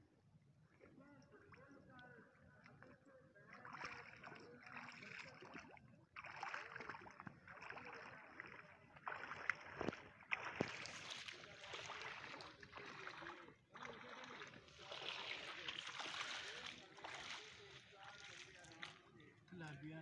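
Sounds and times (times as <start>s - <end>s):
small waves lapping on pebbles: 6.2s - 19.1s.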